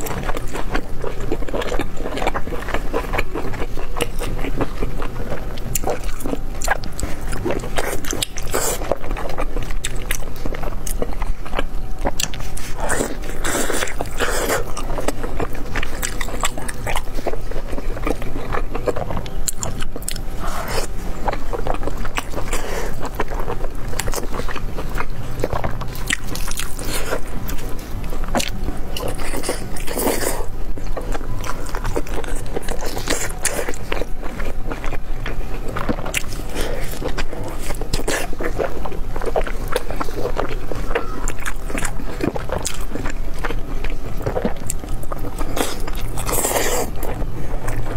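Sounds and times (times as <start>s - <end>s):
wet chewing: 0.0s - 47.9s.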